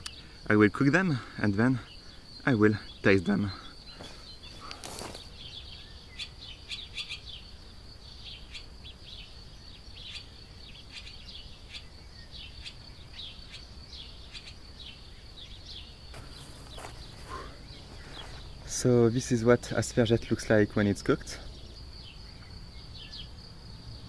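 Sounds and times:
swallow chirping: 1.8 - 7.5, 8.2 - 20.1.

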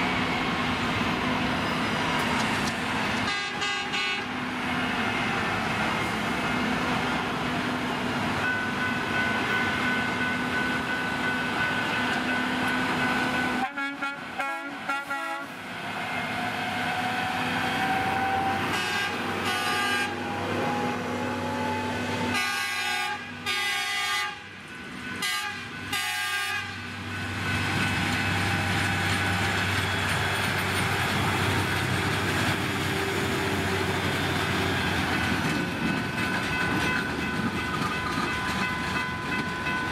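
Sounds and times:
diesel engines droning: 0.0 - 38.6
rail machine rolling past: 0.0 - 39.9
short horn blasts: 18.4 - 20.2.

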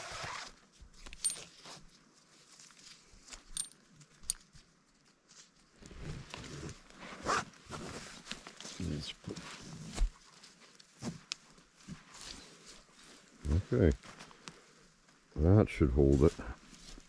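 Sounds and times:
straps rustling and rubbing: 0.0 - 4.3, 5.2 - 14.4
buckle clicks and clinks: 1.1 - 1.5, 3.5 - 4.5.

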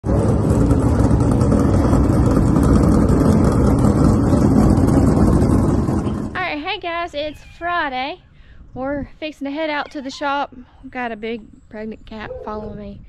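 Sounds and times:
race car engines running: 0.0 - 6.4.

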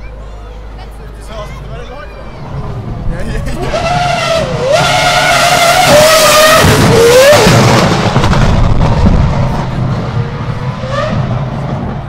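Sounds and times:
race car engine rumble: 0.0 - 12.0.

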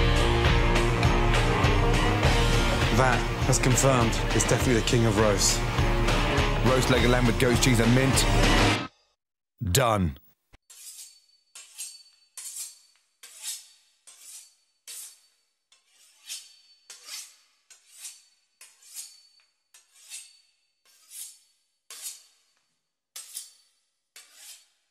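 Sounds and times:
knife sawing through pastry crust: 10.7 - 22.6, 23.2 - 24.9.

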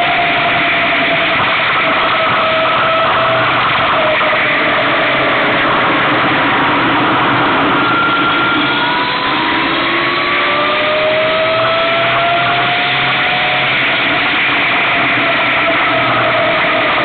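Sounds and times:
wind and road noise: 0.0 - 17.0
electric motor whine: 7.2 - 17.0.

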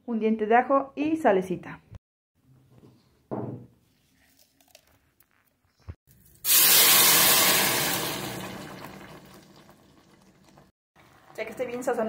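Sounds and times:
sauce sizzling in a hot pot: 6.4 - 11.5.

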